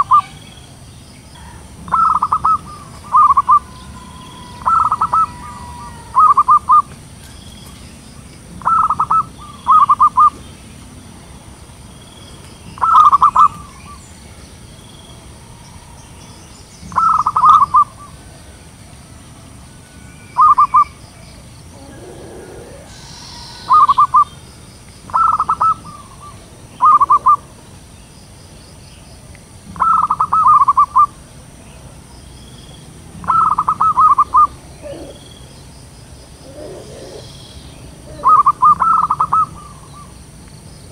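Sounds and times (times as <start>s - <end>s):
dove cooing: 1.4s - 6.9s, 8.6s - 10.4s, 16.9s - 18.3s, 21.6s - 24.4s, 25.1s - 27.5s, 33.2s - 35.4s, 36.4s - 40.1s.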